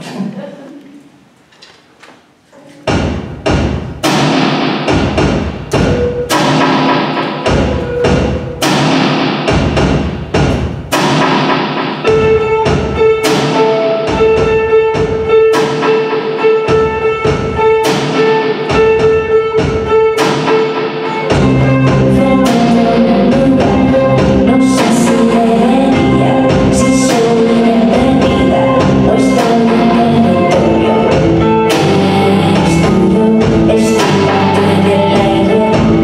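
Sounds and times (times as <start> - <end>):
drum hits: 2.8 - 34.6
live band playing: 4.1 - 36.0
held instrument note: 5.8 - 8.7.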